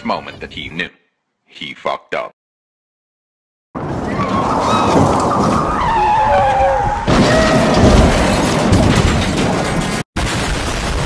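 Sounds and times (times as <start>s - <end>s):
sled scraping down metal track: 3.9s - 10.0s
drawn-out squeal: 4.0s - 8.4s.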